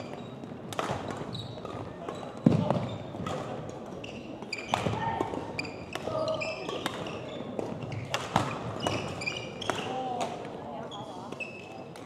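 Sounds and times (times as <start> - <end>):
shoes squeaking on court floor: 0.0 - 10.2, 10.8 - 12.0
racket hitting shuttlecock: 0.7 - 3.6, 4.7 - 10.4.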